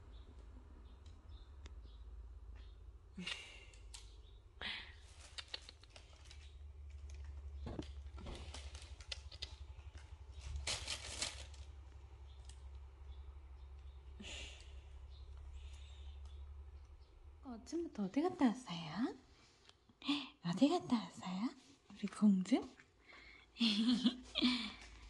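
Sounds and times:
low steady hum: 0.0s - 25.0s
kittens rustling on blanket: 8.0s - 11.8s.

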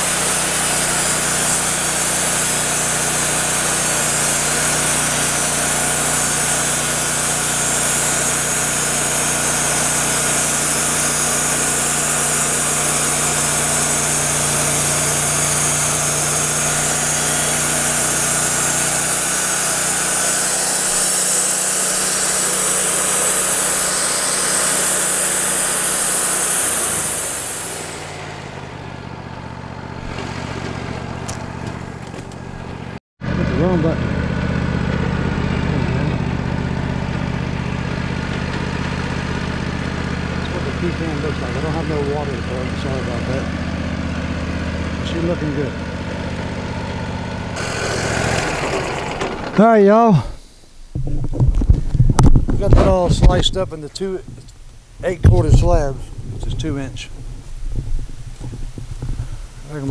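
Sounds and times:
saw blade cutting log: 0.0s - 33.0s, 35.6s - 43.6s, 47.5s - 50.6s
sawmill engine running: 0.0s - 59.9s.

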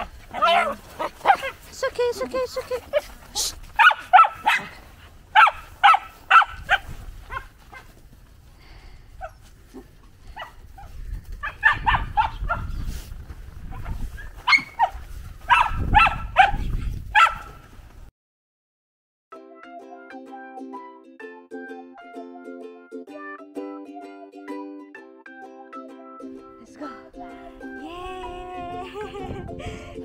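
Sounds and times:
dogs barking: 0.0s - 1.7s, 2.9s - 7.9s, 9.2s - 12.8s, 13.8s - 17.6s.

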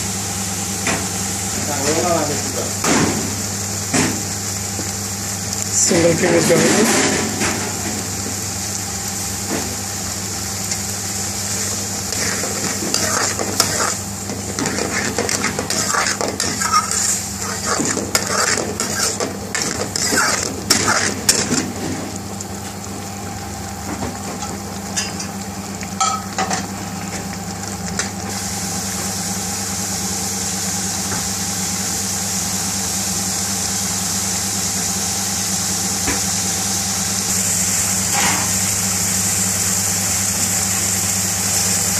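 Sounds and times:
sauce sizzling and bubbling: 0.0s - 41.9s
steady low hum: 6.9s - 26.3s
metal ladle scraping metal pan: 12.1s - 21.8s.

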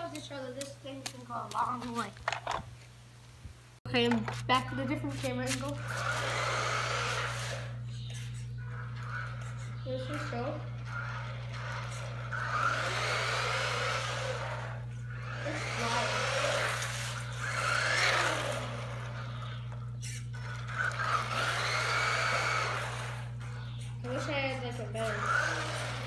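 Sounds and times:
rc car electric motor whining: 4.7s - 26.0s.

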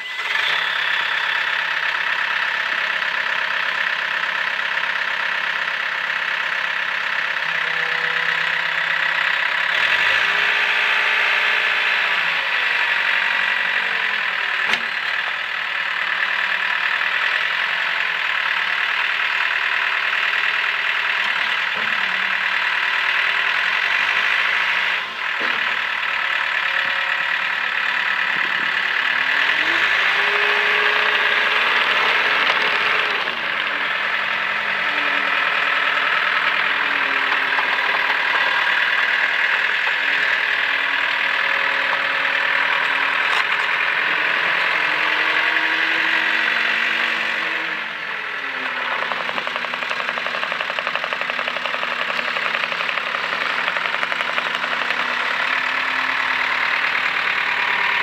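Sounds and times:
diesel engine running: 0.0s - 58.0s
diesel engine starting: 0.0s - 58.0s.

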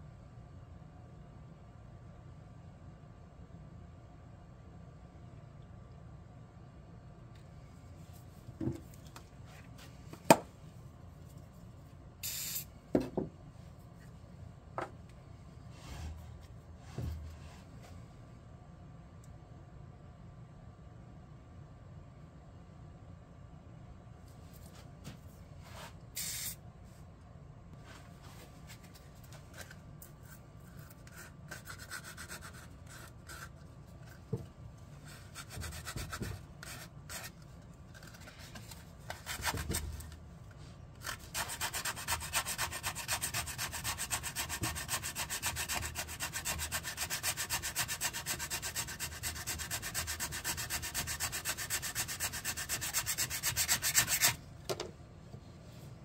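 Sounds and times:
small handling sounds: 36.6s - 41.2s
sandpaper rubbing wood: 41.0s - 54.4s.

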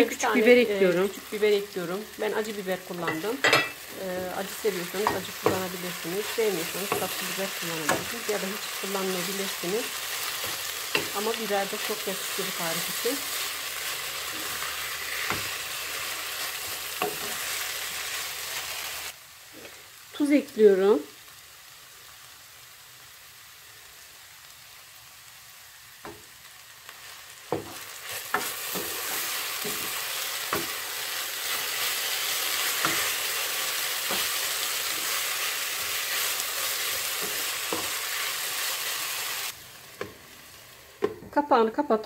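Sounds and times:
potatoes sizzling in a pan: 0.0s - 42.0s
spatula knocking and scraping pan: 4.8s - 8.4s, 10.4s - 11.3s, 15.2s - 15.6s, 27.5s - 30.8s, 32.6s - 33.3s, 37.1s - 38.0s.

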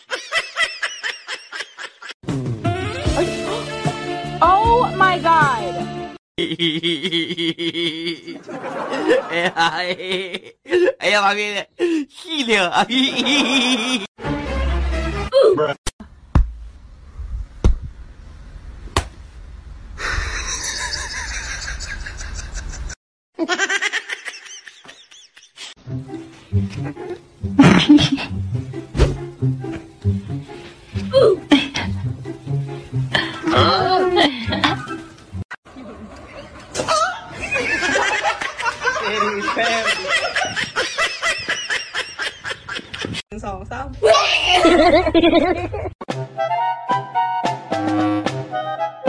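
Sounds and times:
person laughing hard: 6.4s - 11.0s, 12.8s - 14.1s, 20.0s - 25.7s, 27.6s - 28.4s, 33.2s - 34.9s, 44.4s - 46.0s
hand slapping cushion: 18.9s - 19.2s.

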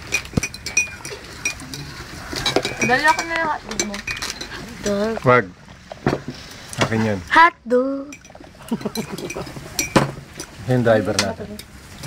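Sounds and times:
cutlery clinking on plates: 0.0s - 4.6s, 8.2s - 11.7s.

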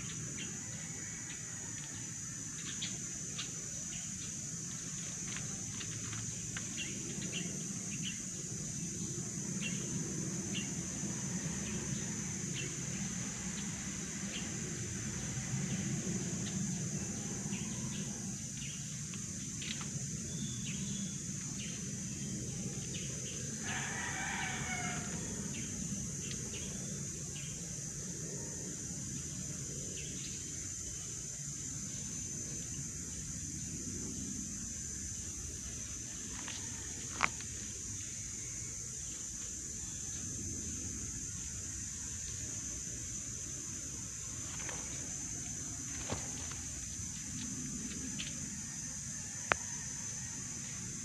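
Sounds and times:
rooster crowing: 0.4s - 2.4s, 23.6s - 25.8s, 36.3s - 37.4s, 48.2s - 51.0s.

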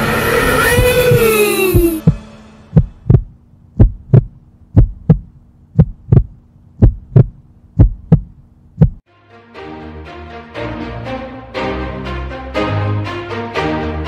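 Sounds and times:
heartbeat thumps: 0.7s - 9.0s
faint steady hum: 2.8s - 9.0s.

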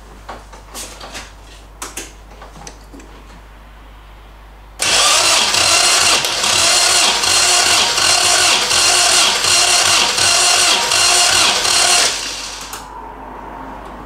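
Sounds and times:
engine cranking by starter motor: 4.8s - 12.9s.

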